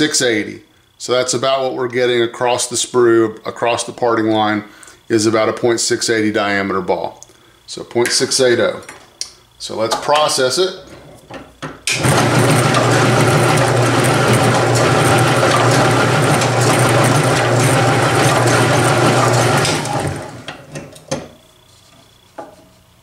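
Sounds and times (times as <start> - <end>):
drill press motor hum: 11.8 - 21.4
ball rolling noise: 12.0 - 20.6.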